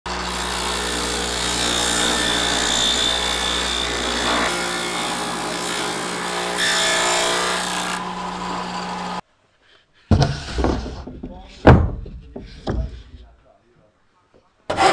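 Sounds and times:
blade cutting wood: 0:00.1 - 0:09.2
table saw motor hum: 0:00.1 - 0:09.2.

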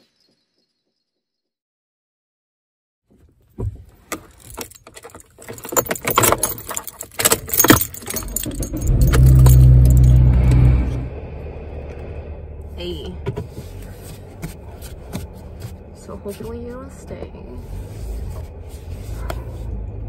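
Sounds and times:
car engine starting and idling: 0:03.4 - 0:20.0
car keys jangling and clicking: 0:03.6 - 0:11.0.

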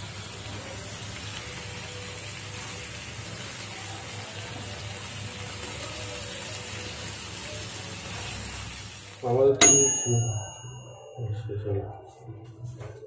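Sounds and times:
chicken sizzling in oil: 0:00.0 - 0:10.4.

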